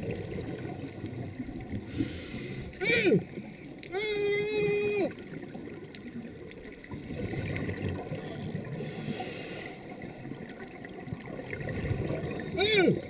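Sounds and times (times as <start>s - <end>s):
underwater bubbles gurgling: 0.0s - 13.0s
regulator breath hiss: 1.9s - 2.8s, 8.8s - 9.8s.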